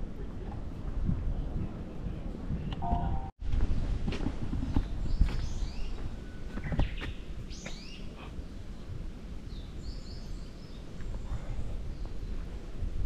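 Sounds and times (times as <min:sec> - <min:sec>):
footsteps on stone path: 0:03.4 - 0:07.9.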